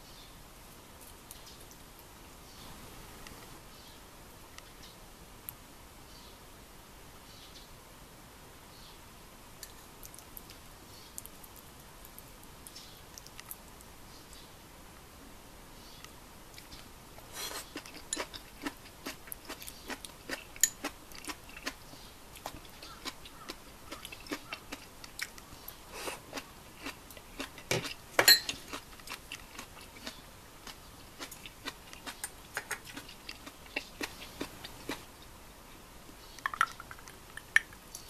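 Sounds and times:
person chewing crunchy food: 16.6s - 35.1s.

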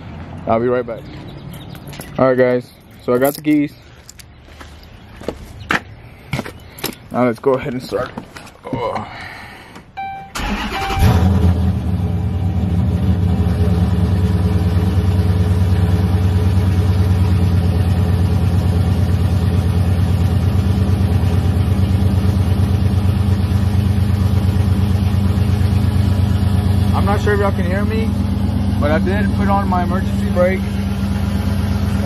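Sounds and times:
dashboard chimes: 10.0s - 10.4s
car starter cranking: 10.3s - 11.7s
engine idling: 10.3s - 32.0s.

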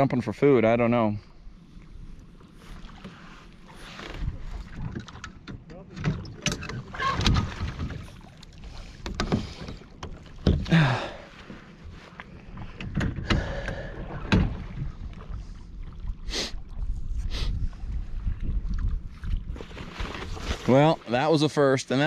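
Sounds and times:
paddle splashing through water: 1.7s - 21.5s
paddle knocking plastic hull: 4.6s - 8.4s, 9.0s - 10.8s.

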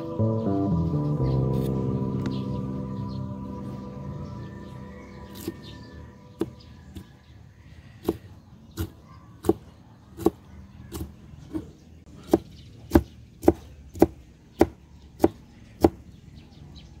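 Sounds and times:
blade chopping bamboo shoots: 12.2s - 16.0s.

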